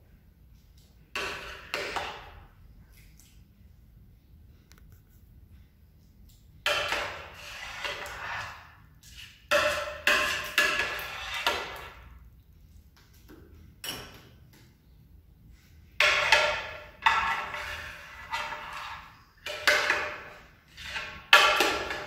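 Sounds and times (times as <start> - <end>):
metal spoon scraping glass dish: 16.2 - 19.7.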